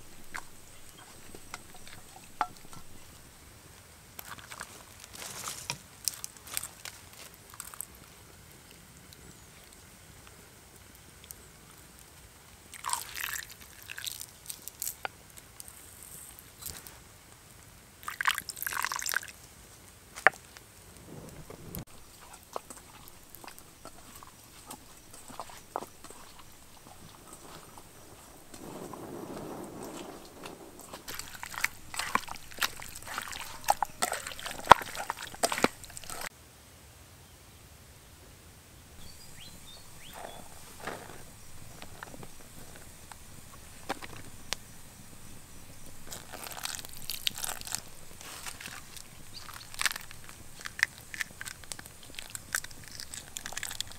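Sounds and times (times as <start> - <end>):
seasoning rustling and clicks: 0.0 - 17.4, 19.8 - 36.3, 39.0 - 53.9
wet squelching of kneaded chicken: 12.7 - 15.1, 21.2 - 29.0, 29.6 - 36.3, 39.0 - 53.9.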